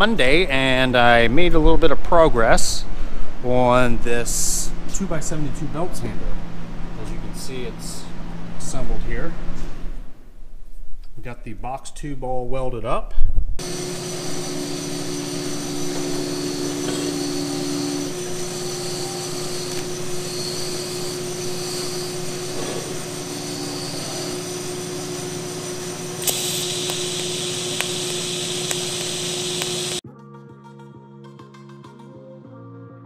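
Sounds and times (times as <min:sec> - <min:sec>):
droning hum with held tones: 0:02.4 - 0:10.6, 0:13.6 - 0:30.0
welding arc hissing: 0:13.6 - 0:30.0.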